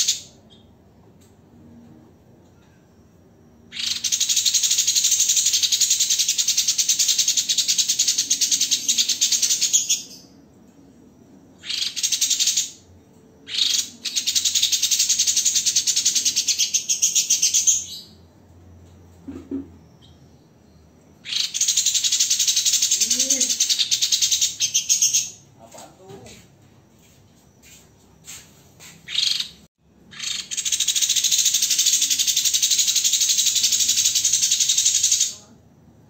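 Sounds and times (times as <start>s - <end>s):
songbird rapid trill: 3.7s - 10.4s, 11.6s - 12.9s, 13.5s - 18.2s, 20.1s - 26.4s, 27.0s - 35.4s.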